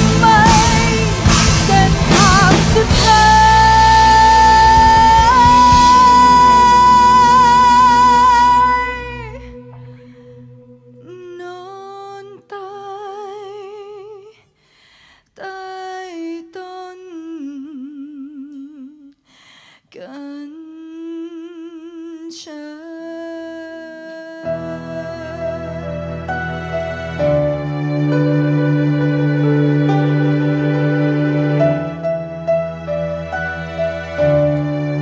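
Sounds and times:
low band notes: 0:00.0 - 0:11.8, 0:24.6 - 0:35.0
woman singing with vibrato: 0:00.0 - 0:14.5, 0:15.4 - 0:19.2, 0:19.8 - 0:26.2.

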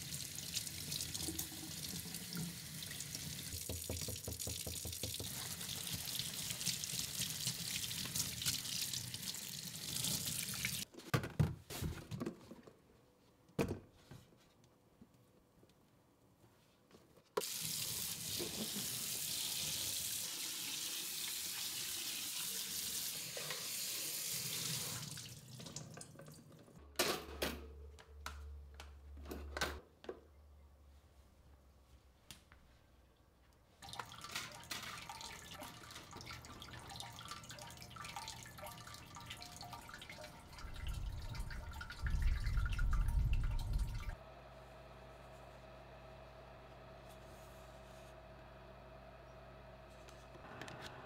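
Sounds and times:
tap running into metal sink: 0:03.5 - 0:06.1
low rumble: 0:40.5 - 0:44.2.

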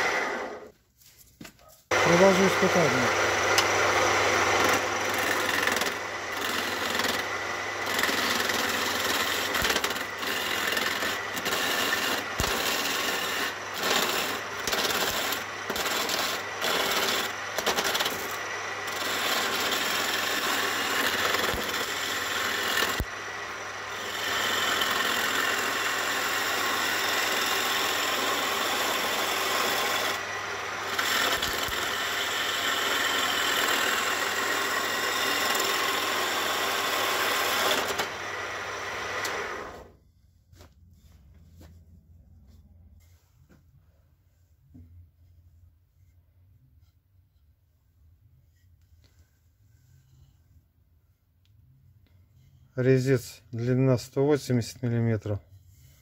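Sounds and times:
lathe humming: 0:00.0 - 0:00.7, 0:01.9 - 0:39.9
gouge scraping spinning wood: 0:01.9 - 0:39.9.

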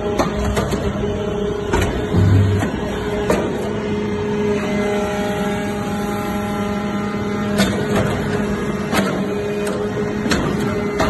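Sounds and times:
machine hum: 0:00.0 - 0:11.0
sharp knocks: 0:02.0 - 0:03.5.

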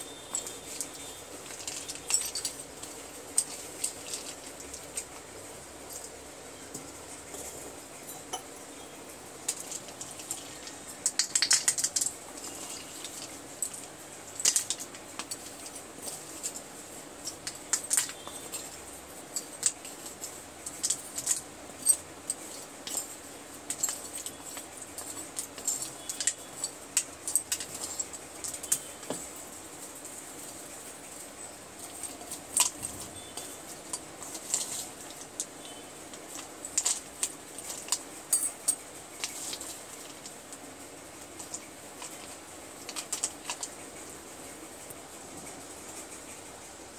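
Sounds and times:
spoon clinking on slate: 0:00.1 - 0:04.9, 0:08.1 - 0:08.9.

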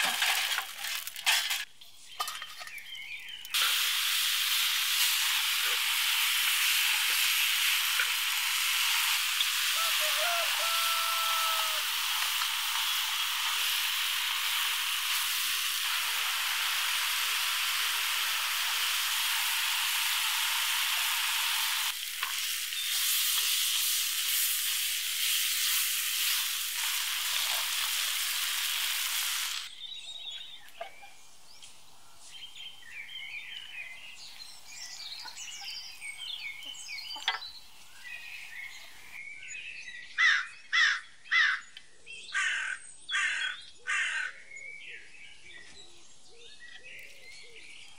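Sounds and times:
small birds chirping: 0:01.8 - 0:03.6, 0:09.3 - 0:15.0, 0:29.6 - 0:47.9
food sizzling in a hot wok: 0:03.6 - 0:29.7
bird calling loudly: 0:09.4 - 0:12.0.

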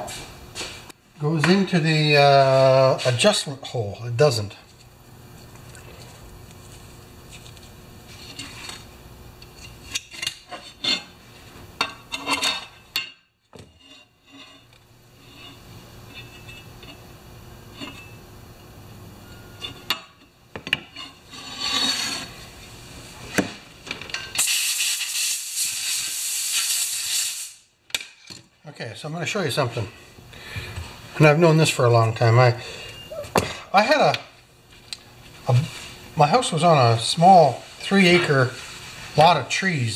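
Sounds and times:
air blow gun hissing: 0:24.4 - 0:27.7.

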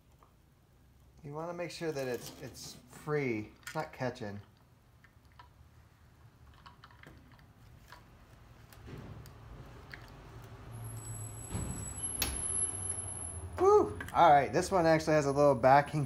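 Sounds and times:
plastic parts clicking and rattling: 0:06.4 - 0:08.9.

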